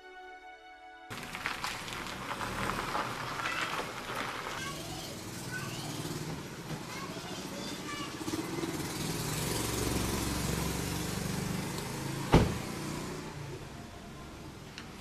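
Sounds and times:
car door shutting: 12.2s - 12.7s.

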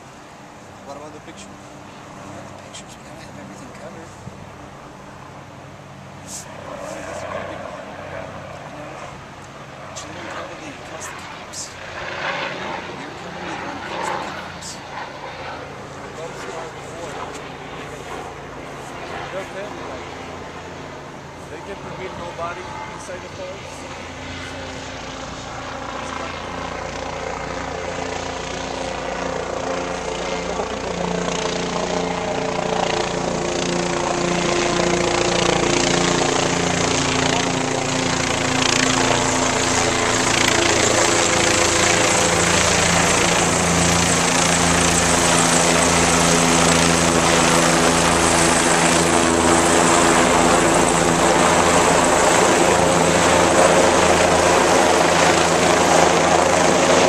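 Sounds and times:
helicopter flying overhead: 0.0s - 57.0s.

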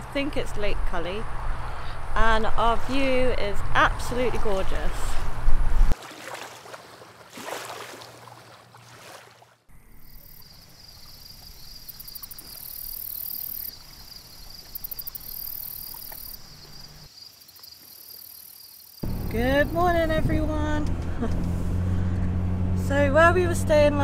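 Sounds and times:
insects pulsed high trills: 9.7s - 19.0s
insects buzzing: 9.7s - 19.9s.

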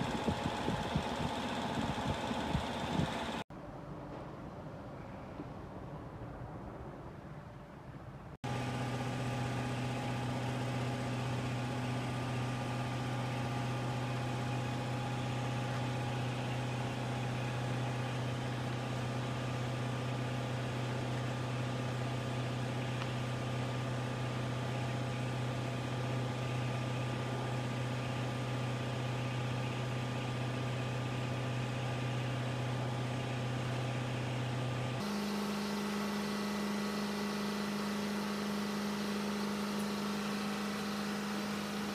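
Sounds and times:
higher-pitched motor hum: 0.0s - 3.4s, 8.4s - 41.9s
machine motor humming: 0.0s - 3.4s.

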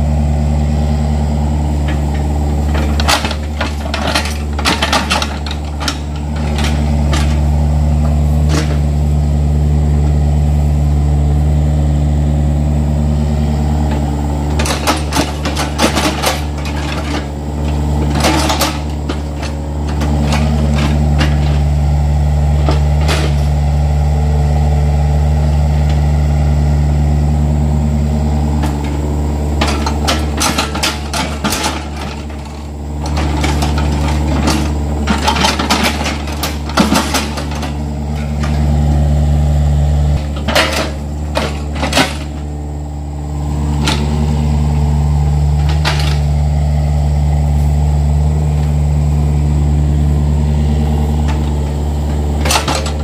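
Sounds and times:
diesel engine running: 0.0s - 53.0s
bucket clattering in soil: 2.7s - 8.9s, 29.6s - 38.7s.

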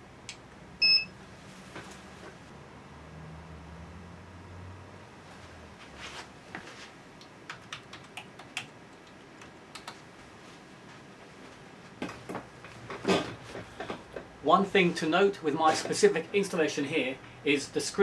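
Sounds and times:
computer keyboard typing: 7.5s - 10.0s.

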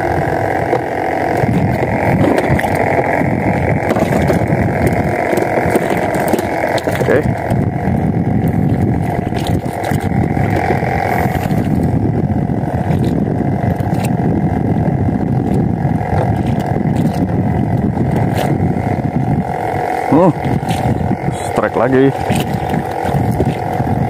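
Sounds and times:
rushing water: 0.0s - 7.6s, 19.5s - 24.0s
boat engine running: 0.0s - 24.0s
wind: 0.0s - 24.0s.

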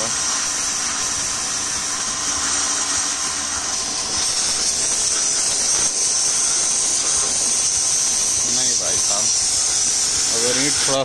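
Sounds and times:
pressure washer running: 0.0s - 11.0s
water jet hissing: 0.0s - 11.0s.

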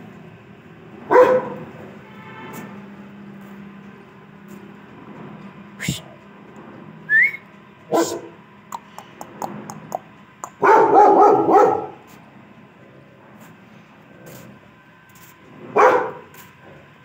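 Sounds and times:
dog barking: 1.1s - 1.7s, 7.9s - 8.4s, 10.5s - 12.0s, 15.7s - 16.3s
short rising whistle: 7.1s - 7.5s.

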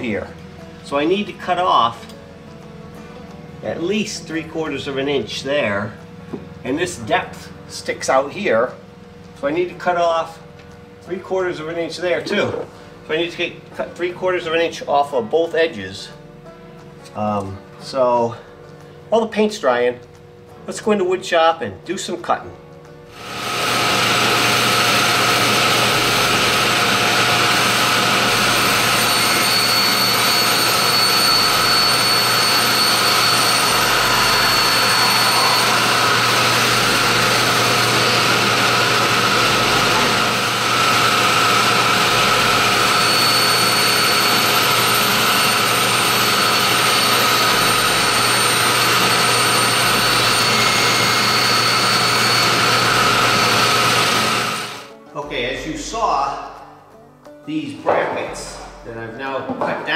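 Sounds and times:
table saw cutting plastic: 23.1s - 54.9s.

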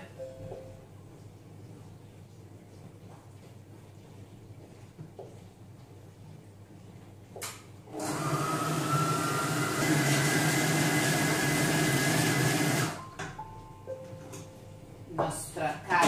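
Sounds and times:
food processor motor running: 7.9s - 13.0s.

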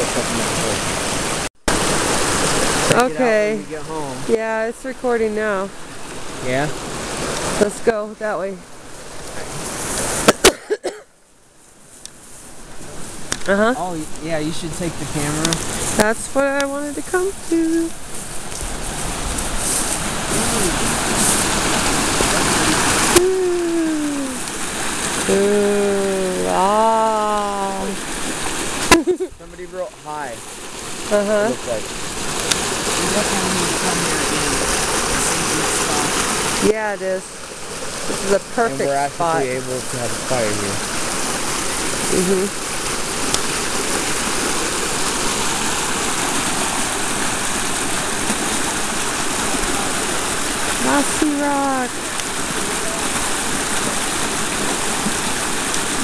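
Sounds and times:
steady rushing noise: 11.9s - 23.2s, 26.2s - 56.0s.

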